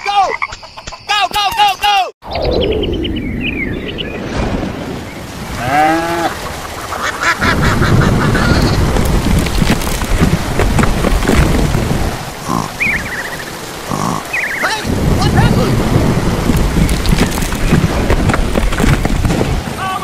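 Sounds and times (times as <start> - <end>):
heavy rain downpour: 4.2 - 20.0
ducks and geese honking and quacking: 5.6 - 8.8.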